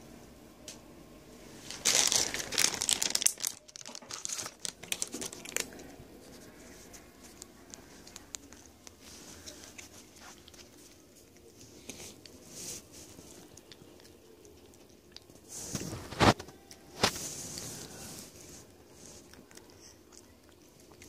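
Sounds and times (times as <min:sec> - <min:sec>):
treat bag crinkling: 0:01.6 - 0:12.4.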